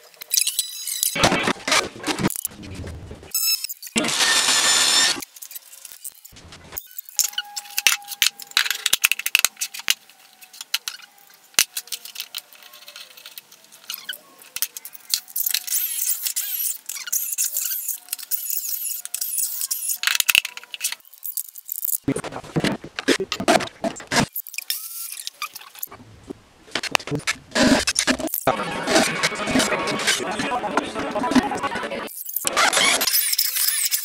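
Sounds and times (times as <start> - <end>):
high-pitched drill whirring: 3.4 - 5.2.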